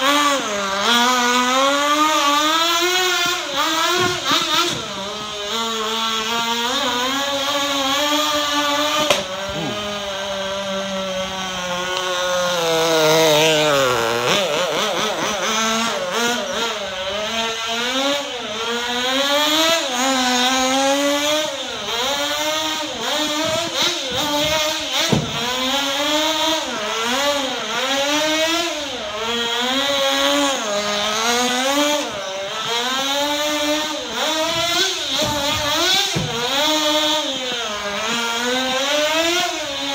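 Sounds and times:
rc buggy engine revving: 0:00.0 - 0:39.9
sharp knocks: 0:34.5 - 0:36.5.

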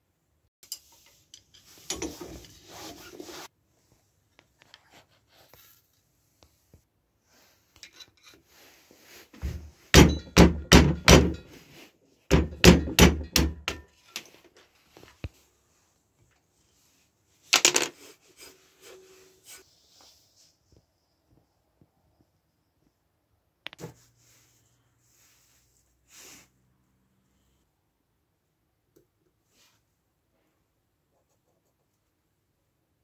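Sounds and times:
knife scraping in vise: 0:07.8 - 0:08.6
hammer knocking on punch: 0:10.0 - 0:11.5, 0:12.3 - 0:13.8.

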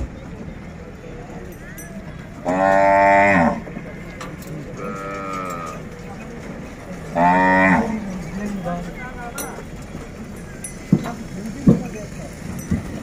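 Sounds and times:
cattle mooing: 0:02.4 - 0:04.1, 0:04.8 - 0:05.8, 0:07.1 - 0:08.2.

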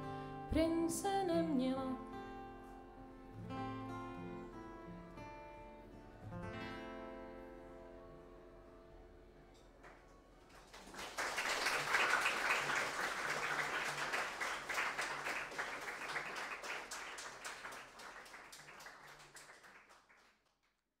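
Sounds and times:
audience applause: 0:09.8 - 0:20.6.

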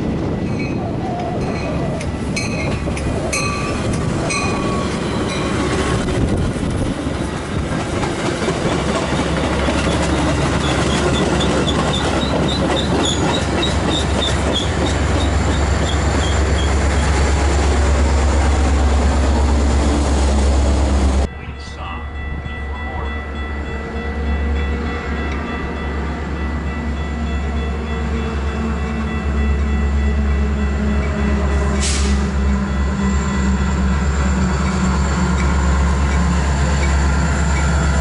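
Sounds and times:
diesel locomotive drone: 0:00.0 - 0:38.0
train wheels clicking over rail joints: 0:01.6 - 0:17.2
high wheel squeaks: 0:08.5 - 0:17.3.

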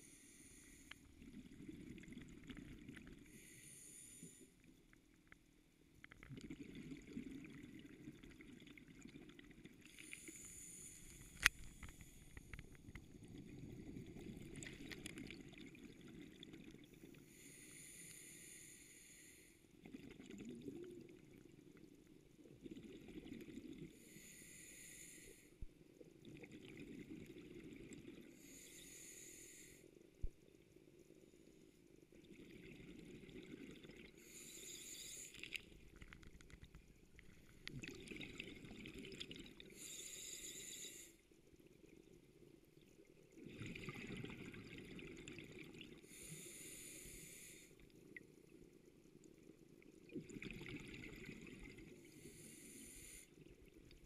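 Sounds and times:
hiss of exhaled bubbles underwater: 0:06.2 - 0:21.5, 0:26.2 - 0:29.8, 0:32.2 - 0:36.1, 0:37.2 - 0:41.2, 0:43.3 - 0:48.5, 0:50.0 - 0:54.0.

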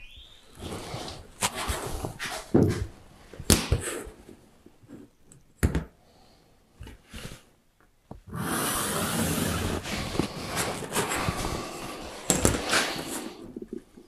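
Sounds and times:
pencil scratching a line: 0:08.3 - 0:13.4.

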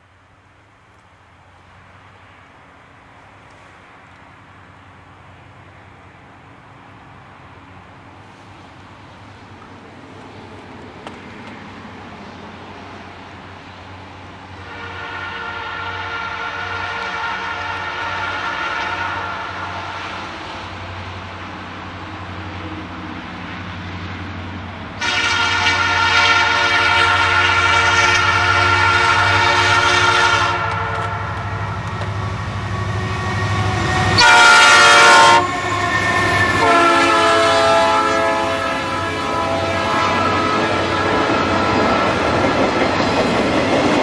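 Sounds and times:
diesel locomotive engines rumbling: 0:00.0 - 0:44.0
locomotive horn blasts: 0:14.6 - 0:19.8, 0:25.0 - 0:32.0, 0:32.7 - 0:41.7
train wheels clacking: 0:30.6 - 0:34.4, 0:40.2 - 0:44.0.

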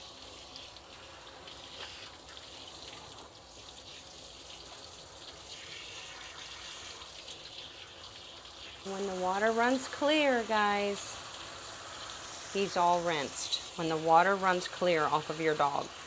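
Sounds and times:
hose spraying water: 0:00.0 - 0:16.0.

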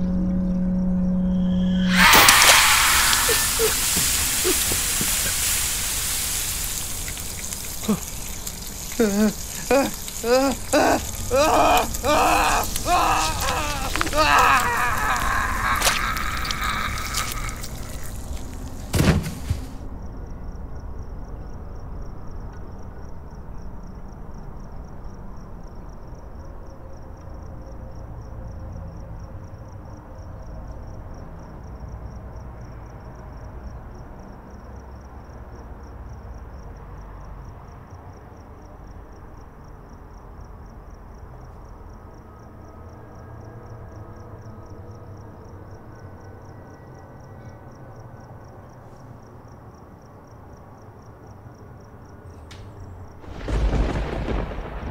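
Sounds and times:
low rumbling drone: 0:00.0 - 0:03.6
crickets chirping: 0:00.0 - 0:54.9
loud bang: 0:01.0 - 0:05.0.

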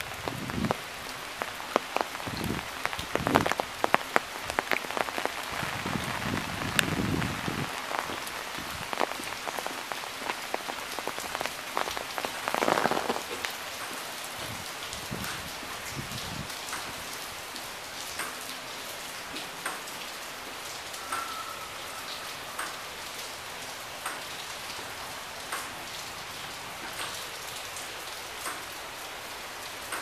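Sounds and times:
steady rain: 0:00.0 - 0:30.0.

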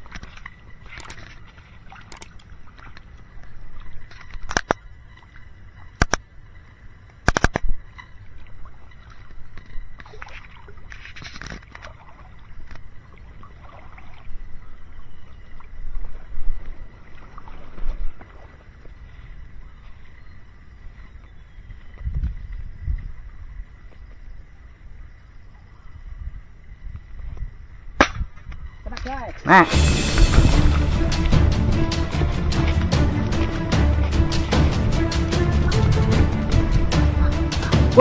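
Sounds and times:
sharp clicks: 0:07.2 - 0:07.7
wind rumbling on microphone: 0:14.3 - 0:29.3
footsteps splashing through mud: 0:29.7 - 0:37.1.

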